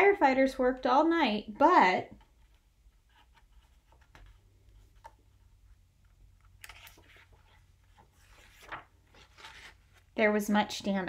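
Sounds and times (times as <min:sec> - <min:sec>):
paper page rustling: 0:06.5 - 0:10.2.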